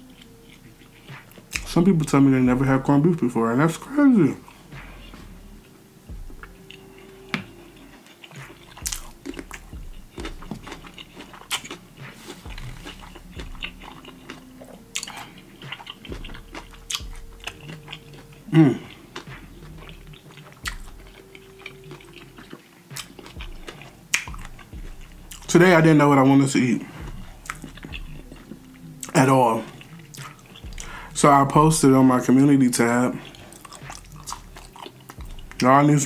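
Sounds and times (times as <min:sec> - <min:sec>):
person chewing and smacking: 0:00.0 - 0:03.0, 0:06.1 - 0:35.8
person humming: 0:12.0 - 0:20.1.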